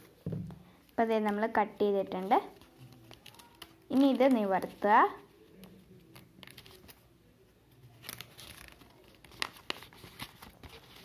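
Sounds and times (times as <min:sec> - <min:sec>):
paper crackles: 0:02.2 - 0:07.1, 0:07.8 - 0:11.0
paper rustling and crinkling: 0:02.2 - 0:07.1, 0:07.7 - 0:11.0.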